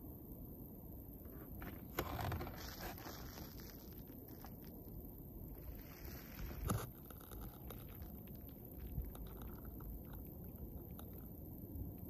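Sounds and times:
small crackles and clicks: 5.6s - 12.0s.

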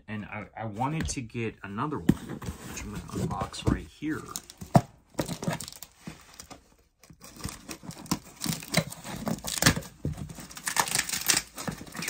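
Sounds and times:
packing tape tearing: 7.1s - 12.0s
scissors cutting packing tape: 7.2s - 12.0s.

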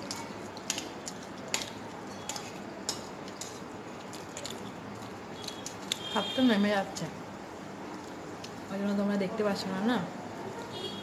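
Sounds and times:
fork clicking against plate: 0.0s - 6.0s.

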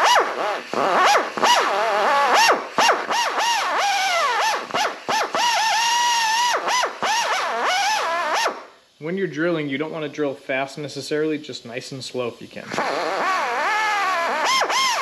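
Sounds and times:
air drill whining and hissing: 0.0s - 8.7s, 12.7s - 15.0s.

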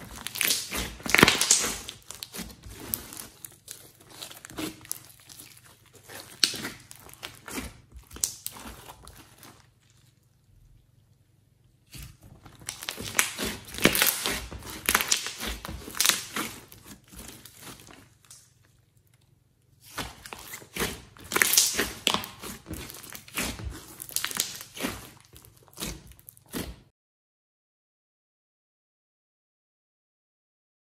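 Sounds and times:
slime crackling and popping: 0.0s - 10.3s, 11.9s - 19.2s, 19.8s - 26.8s.

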